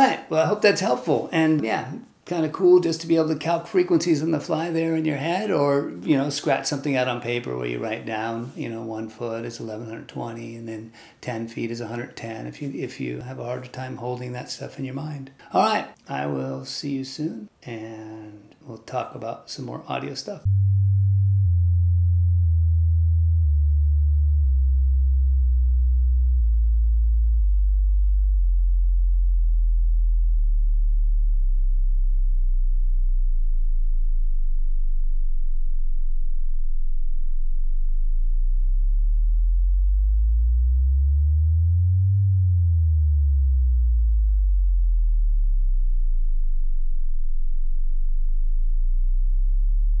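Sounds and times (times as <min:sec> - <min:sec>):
deep electronic sine tones: 0:20.4 - 0:50.0.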